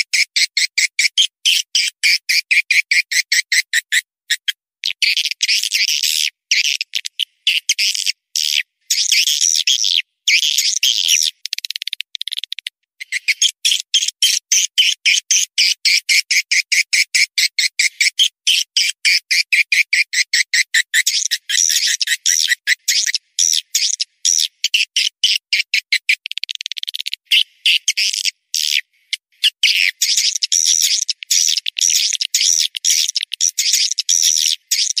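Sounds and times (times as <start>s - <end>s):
birds chirping and twittering: 21.1s - 24.8s, 29.4s - 35.0s.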